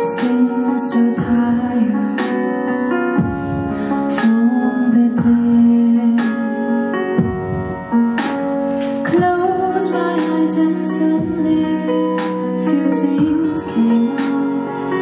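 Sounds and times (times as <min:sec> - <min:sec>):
woman singing: 0:00.0 - 0:02.8, 0:04.0 - 0:07.0, 0:09.0 - 0:15.0
instrumental accompaniment: 0:00.0 - 0:15.0.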